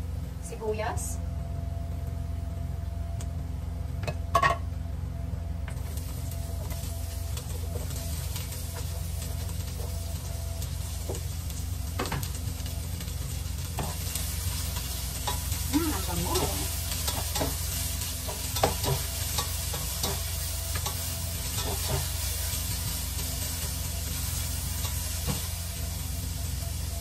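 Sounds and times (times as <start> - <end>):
steady low hum: 0.0 - 27.0
garlic and onion sizzling in oil: 5.8 - 27.0.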